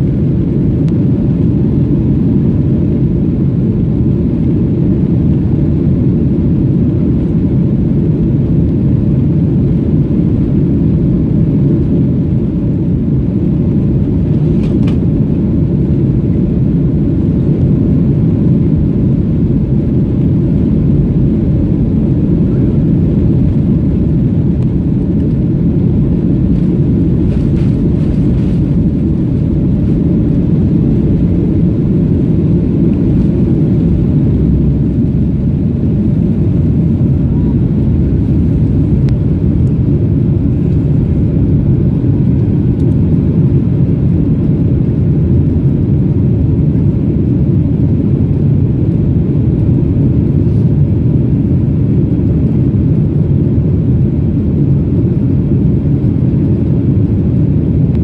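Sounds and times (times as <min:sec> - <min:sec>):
jet engines deep rumble: 0:00.0 - 0:58.0.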